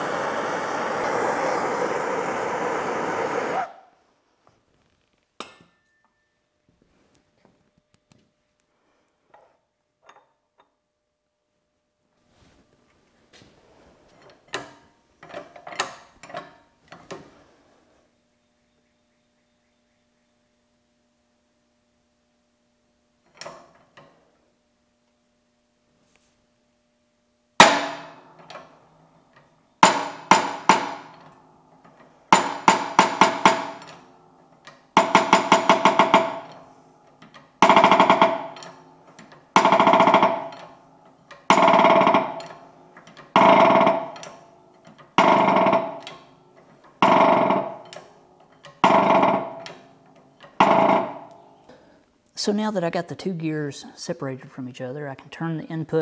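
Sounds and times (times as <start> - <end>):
hydraulic press metallic clanks: 27.6 - 28.8, 29.4 - 51.7.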